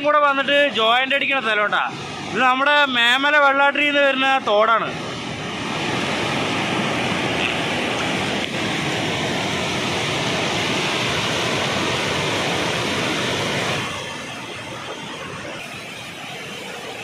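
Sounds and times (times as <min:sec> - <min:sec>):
stream rushing over rocks: 0:04.5 - 0:17.0.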